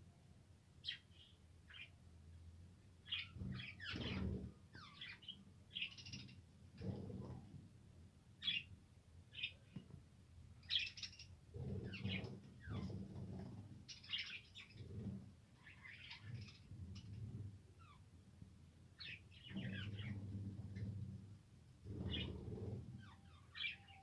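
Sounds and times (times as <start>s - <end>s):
low rumbling noise: 11.4s - 23.4s.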